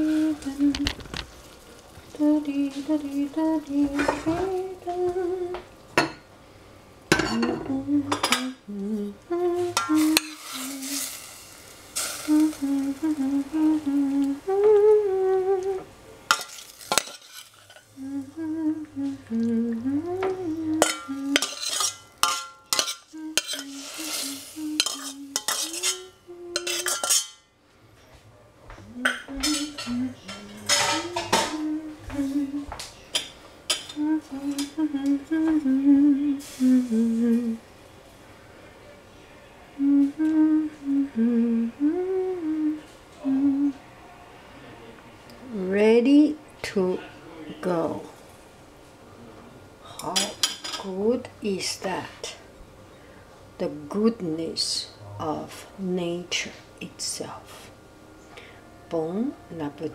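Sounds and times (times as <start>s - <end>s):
woman humming: 0.0s - 0.9s, 2.1s - 5.6s, 7.3s - 11.1s, 12.0s - 15.9s, 17.9s - 21.6s, 23.1s - 27.0s, 28.8s - 32.8s, 33.9s - 37.6s, 39.8s - 43.8s, 54.8s - 56.0s
food sizzling: 9.6s - 19.2s, 20.0s - 27.5s, 36.3s - 37.6s
spatula scraping pan and bowl: 16.3s - 17.9s, 20.8s - 27.4s.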